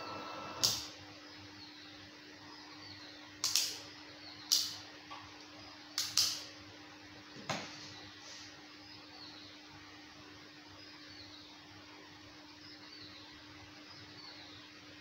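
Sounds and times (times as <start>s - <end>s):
low electrical hum: 0.0s - 15.0s
sharp plastic clicks: 3.4s - 3.8s, 4.5s - 4.8s, 6.0s - 6.5s.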